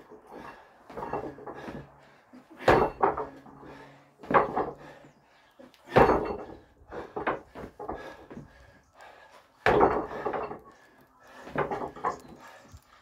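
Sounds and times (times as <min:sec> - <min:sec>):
trainers thudding on concrete slabs: 0:00.9 - 0:05.1, 0:05.7 - 0:08.6, 0:09.6 - 0:10.7.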